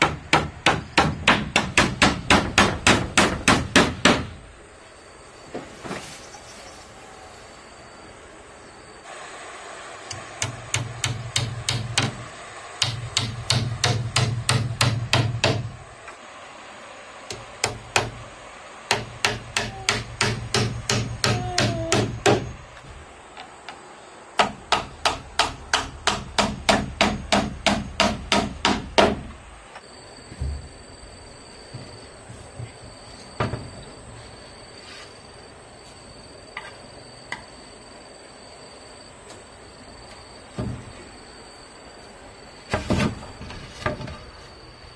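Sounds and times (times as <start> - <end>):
hammer driving nails into wood: 0.0 - 4.3, 10.1 - 12.2, 12.8 - 15.7, 18.9 - 22.5, 24.4 - 29.3.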